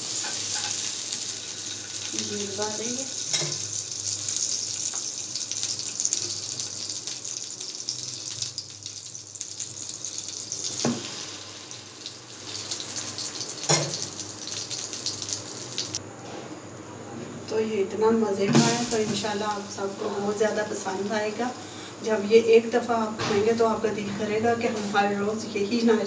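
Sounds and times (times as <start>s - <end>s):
ghee sizzling in a frying pan: 0.0s - 16.0s, 18.5s - 23.2s.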